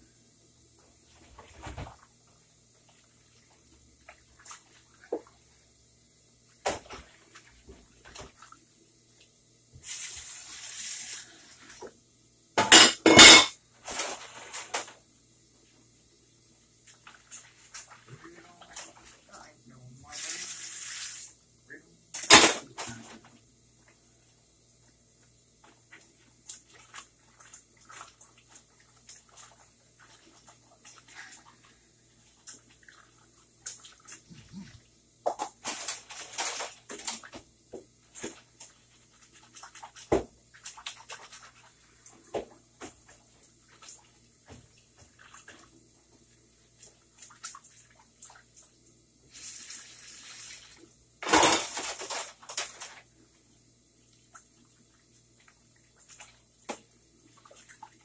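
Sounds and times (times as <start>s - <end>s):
dishes clinking and clattering: 12.6s - 14.9s, 22.2s - 23.2s, 51.2s - 53.0s
tap water running: 20.0s - 21.6s, 22.2s - 51.5s.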